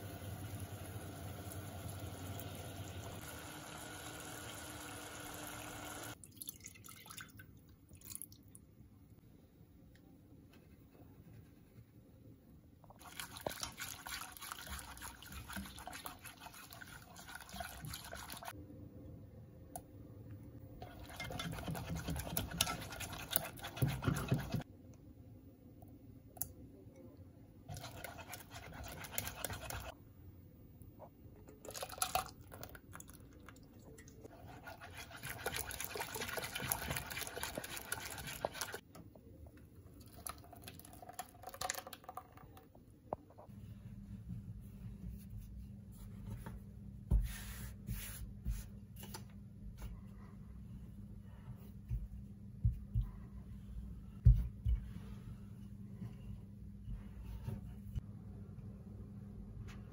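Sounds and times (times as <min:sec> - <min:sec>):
whisk scraping in saucepan: 0:13.2 - 0:18.5, 0:20.8 - 0:24.6, 0:27.7 - 0:29.9, 0:34.3 - 0:38.8.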